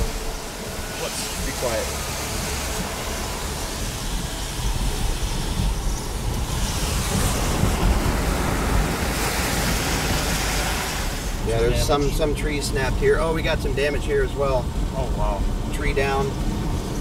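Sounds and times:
wind noise on microphone: 0:00.0 - 0:11.6
tyres hissing on wet road: 0:00.0 - 0:17.0.

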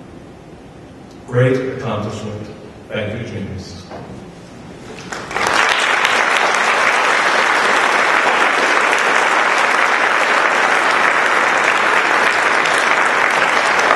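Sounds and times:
audience applauding: 0:04.9 - 0:13.9.

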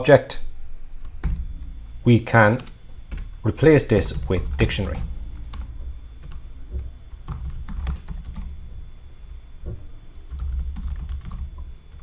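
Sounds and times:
typing on computer keyboard: 0:07.3 - 0:08.5, 0:10.2 - 0:12.0.

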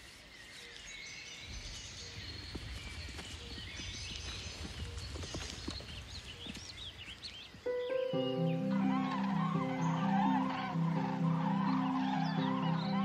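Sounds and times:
hooves thudding on grass: 0:01.5 - 0:07.6.

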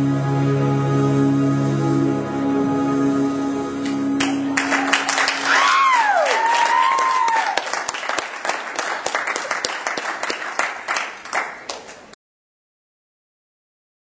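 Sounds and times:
high sliding cheer: 0:03.8 - 0:11.0
audience applauding: 0:03.8 - 0:12.2.

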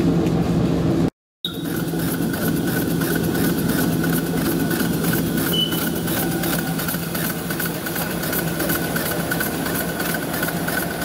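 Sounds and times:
short high tone: 0:05.5 - 0:06.0.

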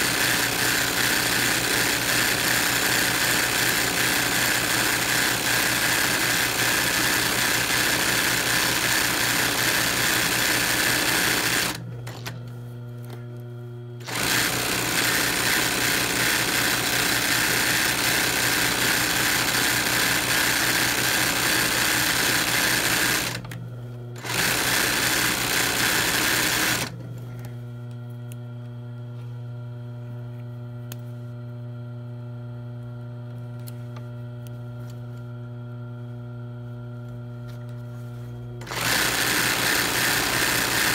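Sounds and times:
sewing machine stitching: 0:00.0 - 0:12.4, 0:14.0 - 0:23.6, 0:24.2 - 0:27.0, 0:38.6 - 0:40.9.

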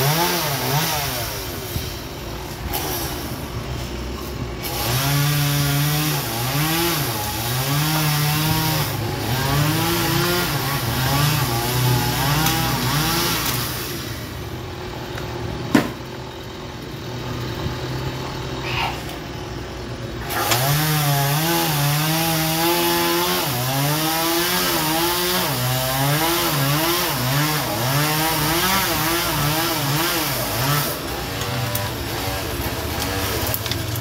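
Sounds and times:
chainsaw cutting wood: 0:00.0 - 0:03.6, 0:04.4 - 0:16.2, 0:20.0 - 0:34.0
sharp wood crack: 0:09.5 - 0:14.1, 0:15.0 - 0:16.2, 0:20.2 - 0:34.0.

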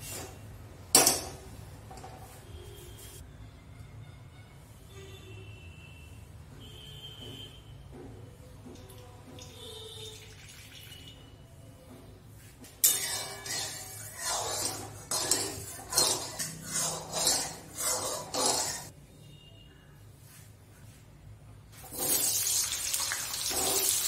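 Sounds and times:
spatula scraping metal wok: 0:12.8 - 0:18.9, 0:21.8 - 0:22.7, 0:23.3 - 0:24.0.

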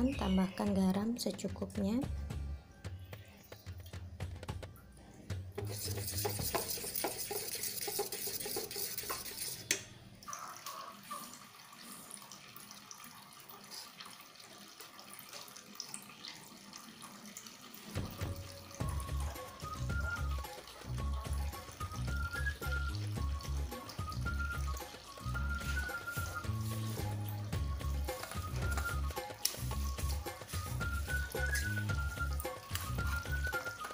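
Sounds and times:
spoon stirring wet batter: 0:05.1 - 0:09.8.

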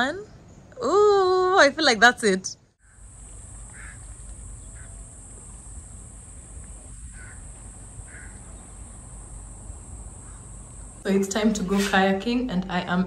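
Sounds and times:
bird calls: 0:02.8 - 0:05.5, 0:06.7 - 0:09.1, 0:10.1 - 0:11.0.

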